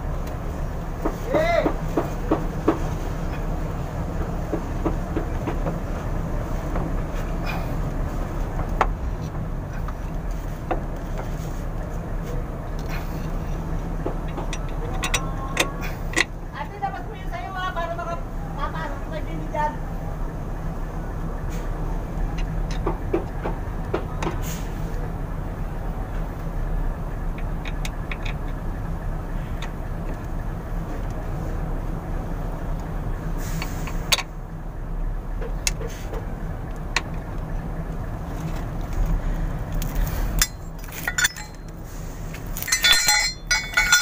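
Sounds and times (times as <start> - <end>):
low machine hum: 34.3 - 44.0
light metallic clinks: 40.4 - 41.8, 42.5 - 44.0.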